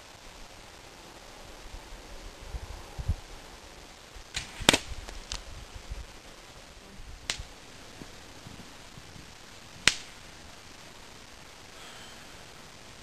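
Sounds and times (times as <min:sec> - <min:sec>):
bow string snap: 0:04.3 - 0:05.4, 0:09.8 - 0:10.2.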